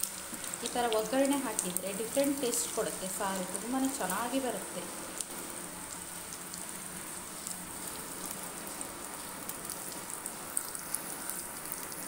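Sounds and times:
garlic sizzling in oil: 0.0 - 12.0
crackles and pops: 5.1 - 6.8, 7.4 - 12.0.

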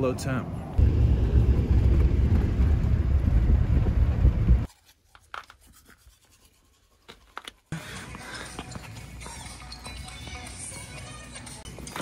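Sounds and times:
wind buffeting microphone: 0.8 - 4.7.

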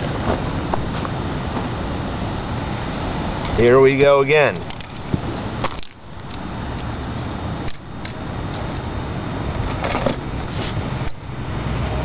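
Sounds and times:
wind blowing across microphone: 0.0 - 12.0
faint rustles and clicks: 9.6 - 11.2.

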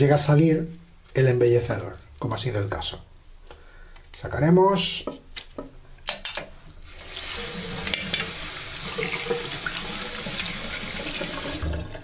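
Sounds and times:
water running into washbasin: 6.9 - 12.0.

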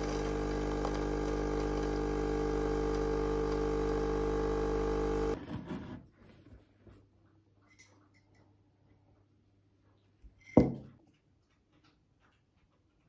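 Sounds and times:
coffee pouring into mug: 0.0 - 5.4
espresso machine pump humming: 0.0 - 5.4.

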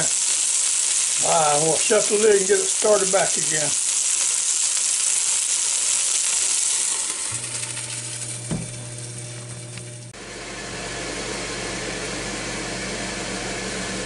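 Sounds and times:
chicken wings sizzling: 0.0 - 10.4
thump: 8.4 - 8.8.

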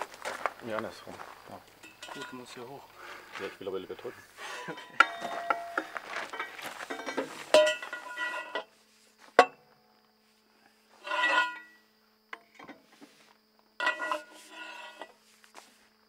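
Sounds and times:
sharp metallic clank: 4.5 - 8.7.

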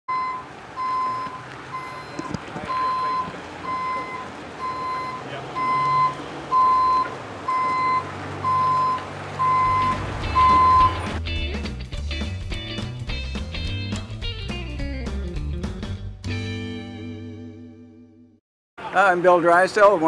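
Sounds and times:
truck back-up alarm beeping: 0.1 - 11.2
diesel engine running: 0.1 - 11.4.

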